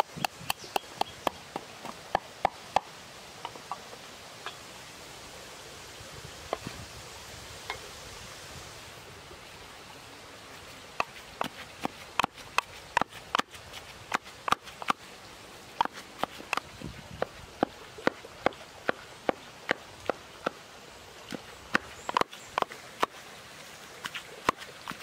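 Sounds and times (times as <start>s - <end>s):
pestle pounding in wooden mortar: 0.0s - 2.9s, 11.0s - 15.0s, 15.8s - 20.6s, 21.3s - 23.1s
steady hiss: 0.0s - 25.0s.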